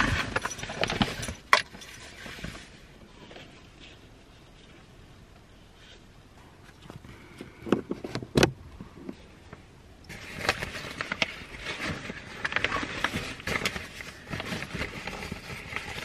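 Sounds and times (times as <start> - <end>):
fabric rustling: 10.1 - 16.0.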